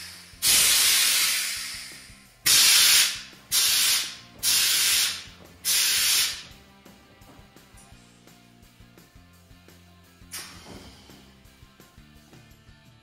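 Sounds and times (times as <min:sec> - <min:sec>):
compressed air hissing: 0:00.0 - 0:07.0, 0:10.3 - 0:11.4.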